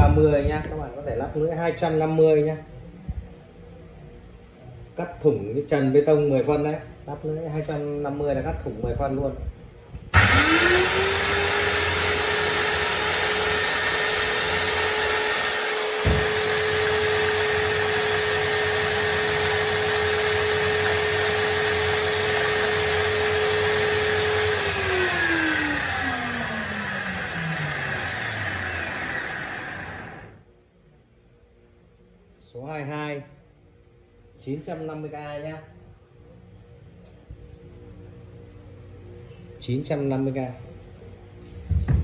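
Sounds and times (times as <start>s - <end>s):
angle grinder whining: 10.1s - 30.4s
grinder motor winding down: 10.1s - 30.4s.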